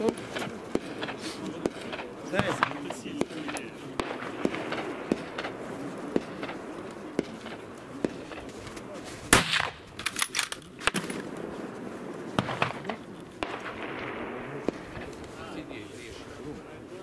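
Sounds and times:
loud gunshot: 0:00.0 - 0:06.6, 0:09.3 - 0:09.9, 0:12.4 - 0:15.1
faint sharp cracks: 0:00.0 - 0:11.5.

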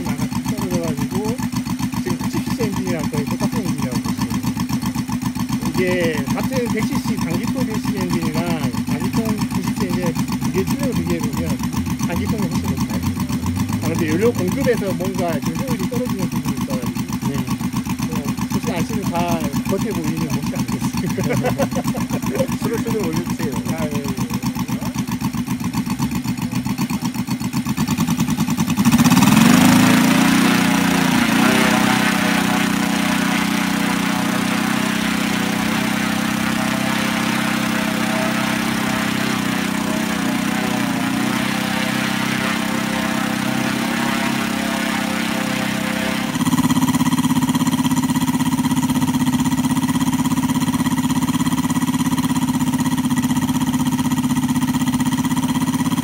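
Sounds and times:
radial engine running: 0:00.0 - 0:56.0
wooden propeller turning: 0:29.2 - 0:48.2.

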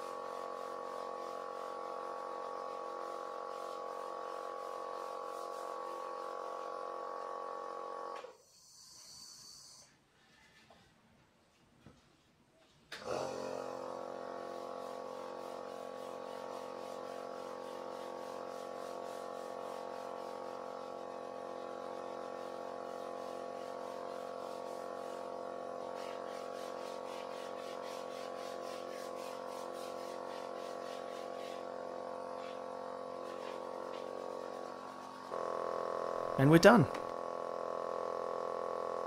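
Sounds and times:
sandpaper rubbing on wood: 0:00.0 - 0:06.6, 0:14.5 - 0:31.8
vacuum pump humming: 0:31.7 - 0:39.0.

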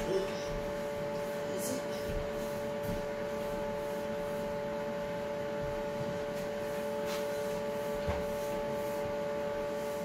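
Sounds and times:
steady background hum: 0:00.0 - 0:10.0.

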